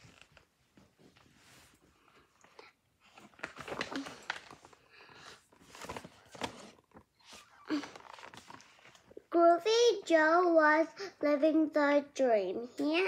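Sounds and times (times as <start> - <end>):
book pages turning: 3.0 - 9.2
paper rustling and bumps: 3.1 - 4.8, 5.5 - 8.9.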